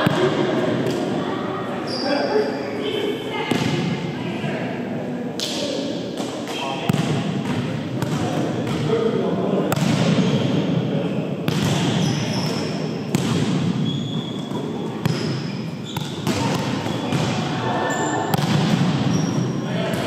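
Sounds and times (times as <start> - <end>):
players' voices: 0.0 - 20.0.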